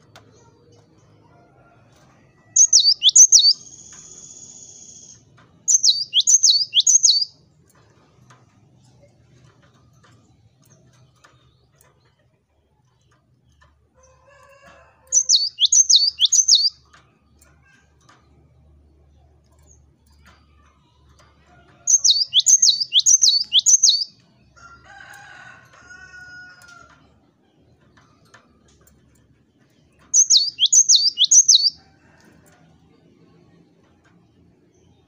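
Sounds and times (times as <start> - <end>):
bird whistled song: 2.6 - 7.4, 15.1 - 16.8, 21.9 - 24.2, 30.2 - 31.8.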